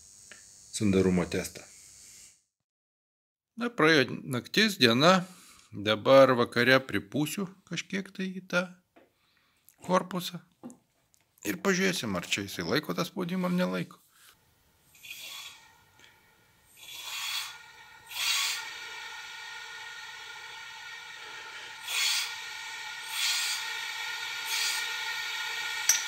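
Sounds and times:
compressed air hissing through hose: 14.9s - 26.0s.

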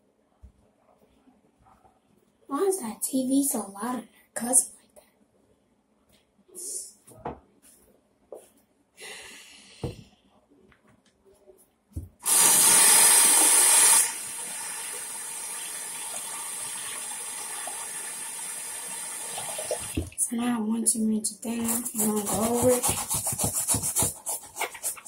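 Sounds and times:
water running from tap: 12.2s - 20.2s.

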